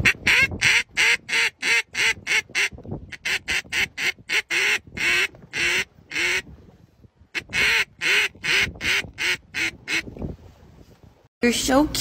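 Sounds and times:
duck call quacks: 0:00.0 - 0:06.4, 0:07.4 - 0:10.0.

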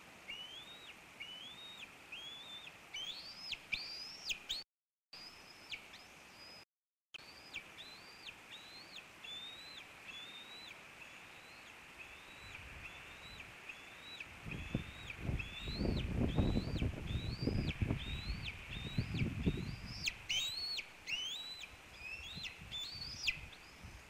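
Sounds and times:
eaglet cheeping calls: 0:00.3 - 0:04.6, 0:07.3 - 0:23.6.

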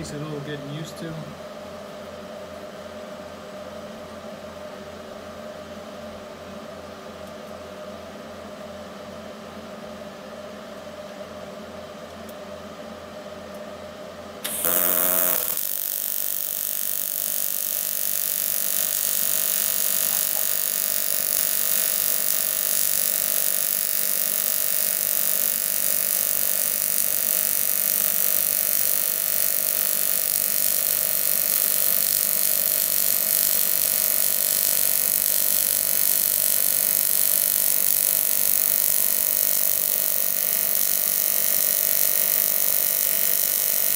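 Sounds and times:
welding arc buzz and hiss: 0:14.4 - 0:43.9.

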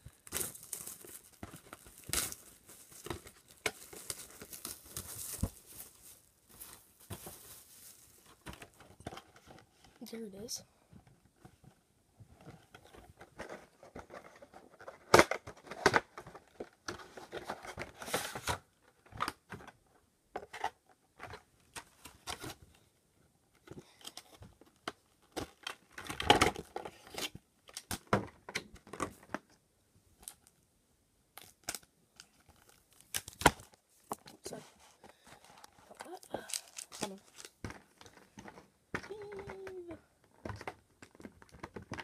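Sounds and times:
plastic crinkling: 0:00.0 - 0:09.6, 0:31.4 - 0:42.0
packaging being torn open: 0:00.2 - 0:05.5, 0:31.4 - 0:33.8.

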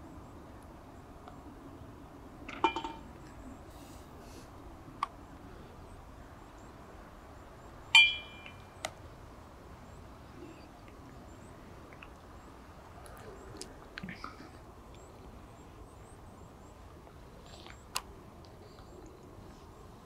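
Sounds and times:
sharp ringing clink: 0:07.9 - 0:08.7.

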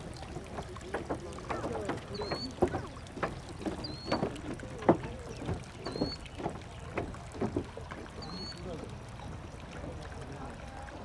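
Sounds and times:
distant voices: 0:00.0 - 0:11.0
scattered knocks: 0:00.4 - 0:08.2.

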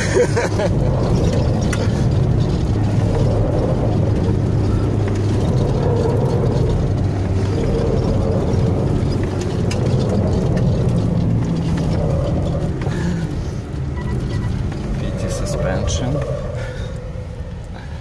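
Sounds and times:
car engine hum: 0:00.0 - 0:18.0
tyre road noise: 0:00.0 - 0:18.0.

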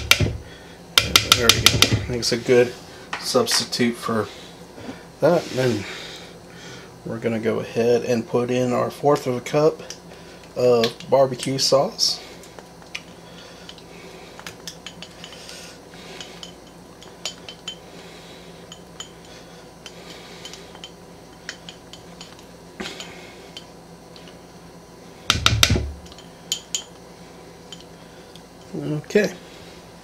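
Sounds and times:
knocks and taps: 0:00.0 - 0:00.4, 0:01.0 - 0:02.0.

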